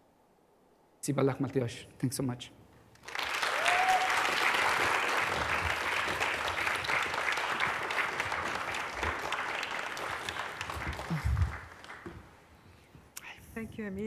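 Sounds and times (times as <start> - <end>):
audience applauding: 3.0 - 12.5.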